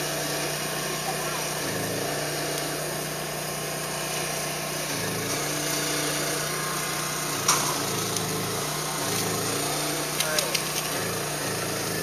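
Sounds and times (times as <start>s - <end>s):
engine idling hum: 0.0s - 12.0s.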